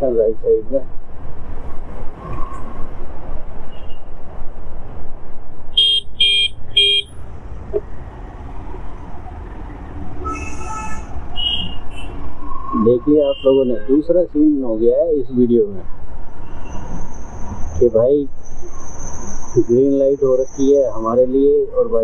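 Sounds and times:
vehicle horn honking: 0:05.8 - 0:07.2, 0:10.2 - 0:11.7
motorcycle wind and road noise: 0:06.1 - 0:09.9.

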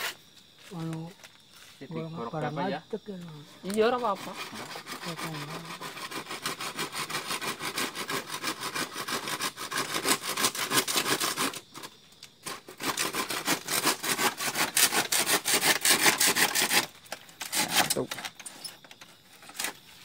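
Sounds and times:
hand saw cutting bamboo: 0:03.9 - 0:11.6, 0:12.4 - 0:18.5.

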